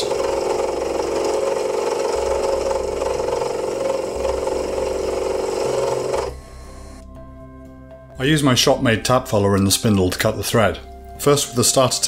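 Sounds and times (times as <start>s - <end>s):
milling machine motor whine: 0.0s - 7.0s.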